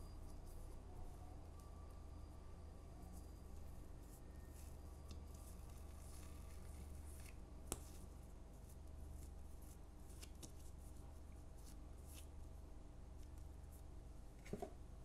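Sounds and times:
steady low hum: 0.0 - 15.0
dough rustling on a mat: 3.6 - 12.6.

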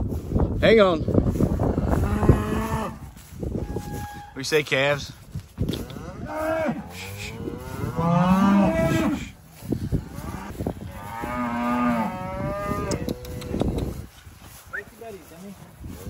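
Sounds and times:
cows mooing and bawling: 1.6 - 4.4, 5.8 - 13.6.

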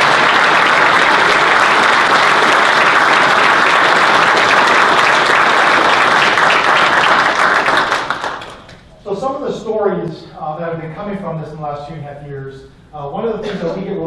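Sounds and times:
audience applauding: 0.0 - 8.8.

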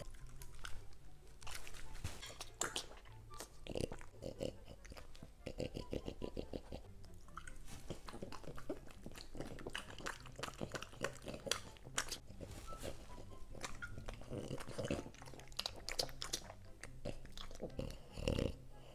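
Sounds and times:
wet mouth smacks: 0.0 - 3.6, 7.1 - 12.2, 13.6 - 17.8
dog chewing crunchy vegetables: 0.0 - 18.6.

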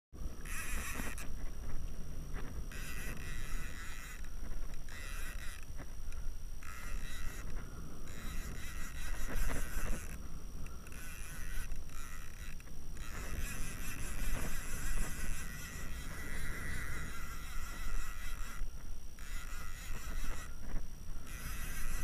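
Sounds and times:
fishing reel being cranked: 0.4 - 22.0.

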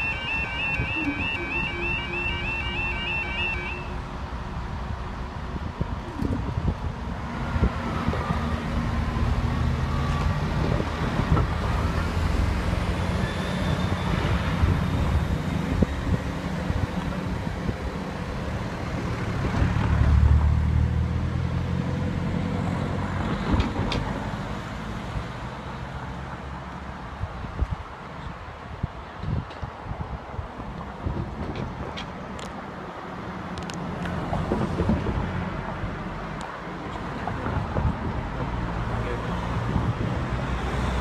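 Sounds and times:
train diesel engines droning: 0.0 - 19.4.

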